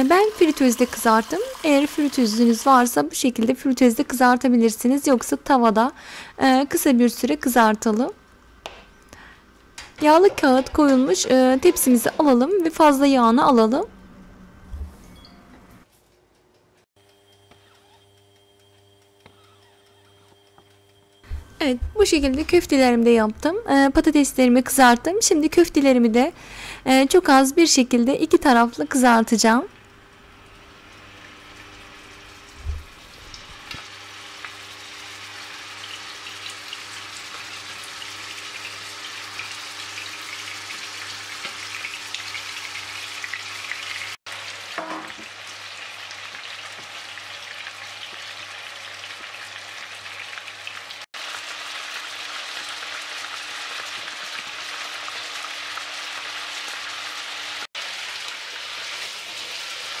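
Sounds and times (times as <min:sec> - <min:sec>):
meat sizzling in hot oil: 0:00.0 - 0:03.1, 0:30.4 - 1:00.0.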